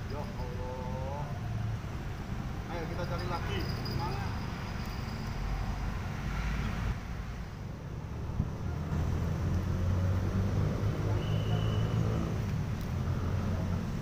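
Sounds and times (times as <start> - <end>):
low rumble of road traffic: 0.0 - 14.0.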